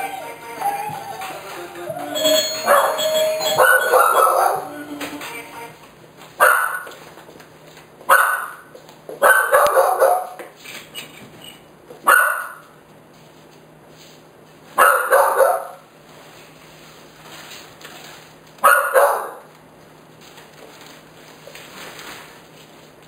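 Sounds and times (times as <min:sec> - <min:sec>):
dog barking: 0:02.7 - 0:04.7, 0:06.4 - 0:07.0, 0:08.1 - 0:10.4, 0:12.0 - 0:12.6, 0:14.8 - 0:15.8, 0:18.6 - 0:19.5.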